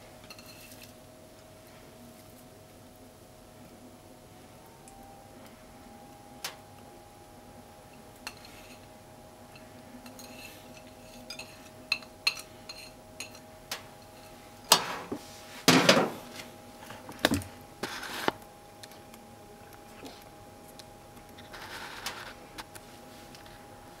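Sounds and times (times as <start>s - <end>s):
faint steady hum: 0.0s - 24.0s
dishes and utensils clinking: 0.3s - 0.9s, 8.3s - 8.8s, 9.6s - 13.4s.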